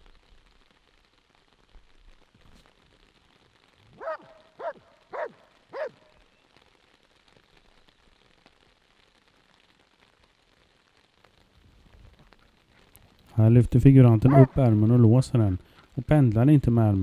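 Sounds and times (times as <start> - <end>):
dog barking: 4.0 - 6.0, 14.2 - 14.6.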